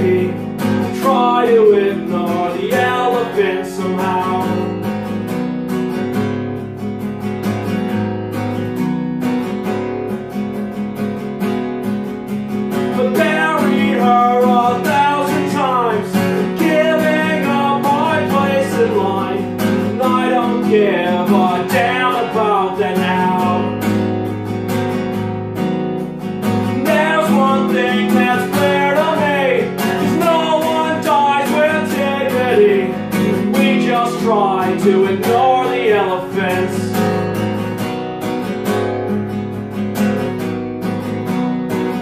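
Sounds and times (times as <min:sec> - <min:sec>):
acoustic guitar strumming: 0:00.0 - 0:42.0.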